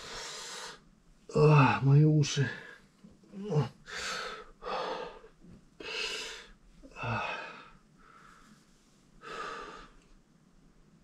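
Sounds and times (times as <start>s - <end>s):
man breathing heavily: 0.0s - 0.9s, 3.4s - 10.0s.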